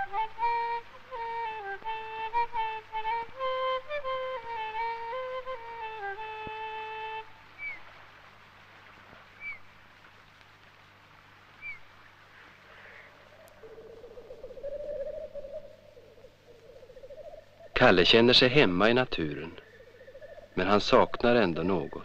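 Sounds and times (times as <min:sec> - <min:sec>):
flute melody: 0:00.0 - 0:07.8
low quavering bird call: 0:00.0 - 0:08.1, 0:09.2 - 0:09.8, 0:11.5 - 0:22.0.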